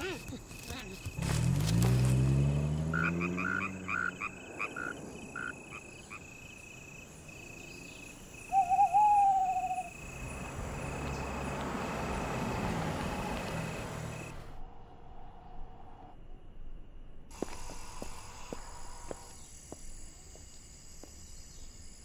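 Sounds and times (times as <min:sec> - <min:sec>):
car engine hum: 0:00.0 - 0:08.6, 0:09.2 - 0:14.6
short chirping calls: 0:07.6 - 0:10.0
owl hoot: 0:08.5 - 0:09.9.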